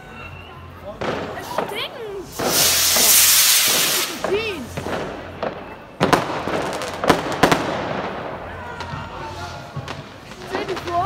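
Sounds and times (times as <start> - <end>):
firework bangs: 1.0 - 11.0
firework hiss: 1.1 - 5.4.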